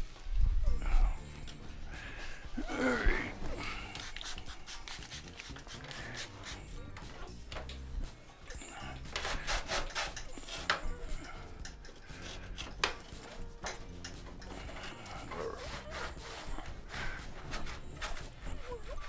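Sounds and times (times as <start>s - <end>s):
cloth wiping plastic: 15.3s - 19.0s.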